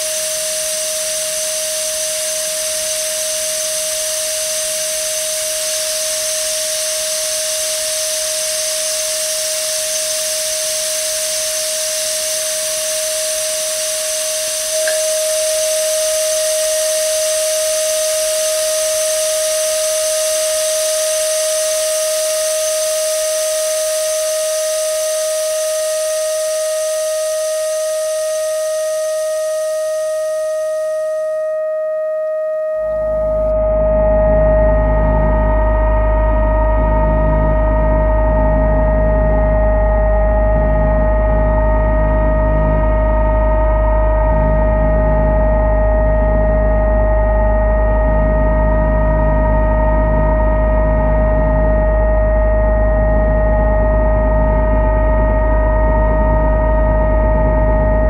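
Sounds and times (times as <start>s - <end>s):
sustained drone tone: 0.0s - 28.8s, 32.7s - 58.0s
higher tones: 14.7s - 16.0s.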